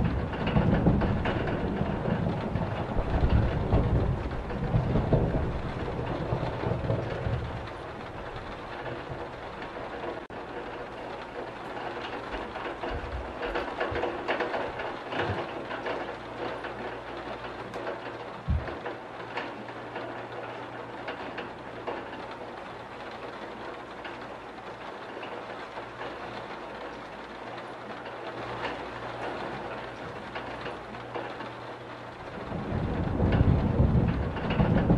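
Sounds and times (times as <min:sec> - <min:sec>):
thunder rumbling: 0:00.0 - 0:23.4, 0:28.3 - 0:34.9
rain on window glass: 0:00.0 - 0:34.9.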